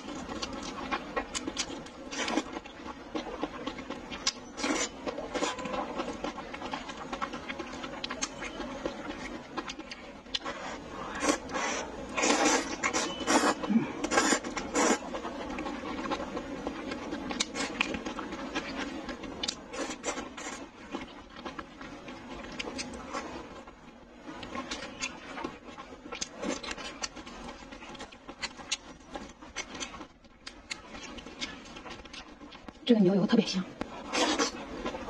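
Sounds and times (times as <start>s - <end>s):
wet chewing clicks and smacks: 0.0s - 32.8s
loud slurp: 10.4s - 15.1s.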